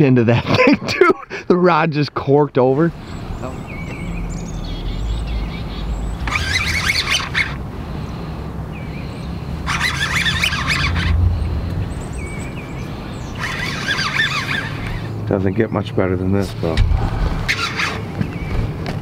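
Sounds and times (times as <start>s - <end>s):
songbird chattering song: 3.0s - 16.8s
low steady hum: 7.6s - 13.6s.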